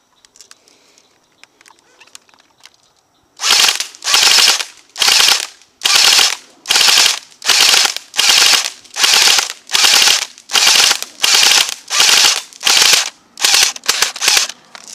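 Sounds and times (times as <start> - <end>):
airsoft guns firing bursts: 3.4 - 14.6.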